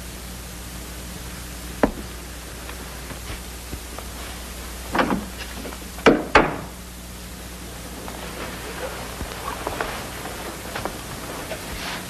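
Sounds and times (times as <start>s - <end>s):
steady hiss: 0.0s - 12.0s
sharp knocks and thuds: 1.8s - 2.1s, 4.9s - 6.8s.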